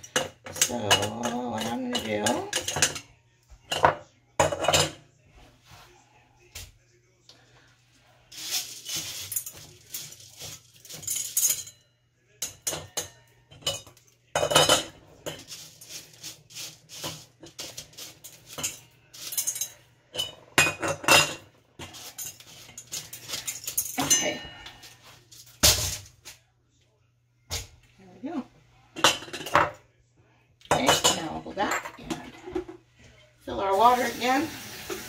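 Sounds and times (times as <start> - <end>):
metal funnel clinking on glass jars: 0.0 - 3.0, 8.3 - 11.8, 12.4 - 24.4
lentils rattling into jars: 8.3 - 11.6, 15.3 - 19.8, 21.8 - 24.0.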